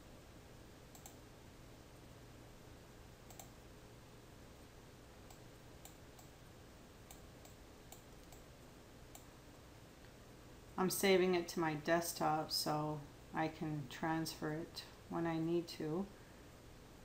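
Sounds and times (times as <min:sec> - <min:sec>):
low steady hum: 0:00.0 - 0:17.0
computer mouse clicks: 0:00.9 - 0:01.2, 0:03.2 - 0:03.6, 0:05.2 - 0:06.4, 0:07.0 - 0:08.5.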